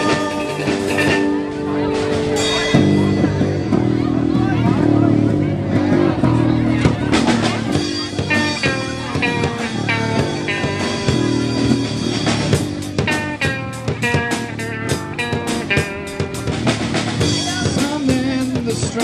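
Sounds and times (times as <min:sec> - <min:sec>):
electric guitar single notes: 0:00.0 - 0:18.7
bass guitar: 0:00.0 - 0:19.0
drum hits: 0:00.0 - 0:19.0.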